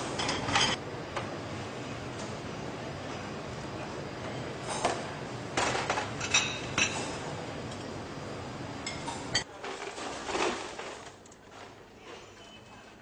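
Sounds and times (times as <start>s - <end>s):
crockery and cutlery clinking: 4.7s - 7.2s.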